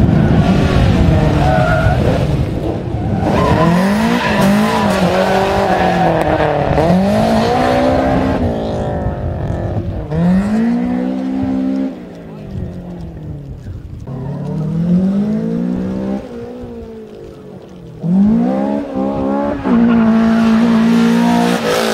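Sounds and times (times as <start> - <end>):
car engine revving: 0.0 - 13.4, 14.0 - 21.9
tyres squealing on asphalt: 1.1 - 2.2, 2.8 - 8.2, 18.9 - 21.6.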